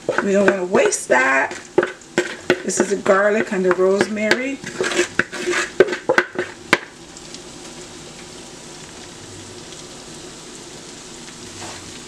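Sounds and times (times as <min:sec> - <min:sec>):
potatoes sizzling in a skillet: 0:00.0 - 0:12.0
wooden spoon tapping bowl: 0:00.1 - 0:06.9.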